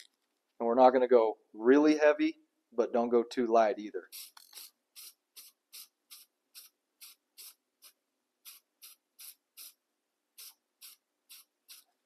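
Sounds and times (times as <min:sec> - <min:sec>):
aerosol can spraying hisses: 0:04.1 - 0:09.8, 0:10.4 - 0:11.9.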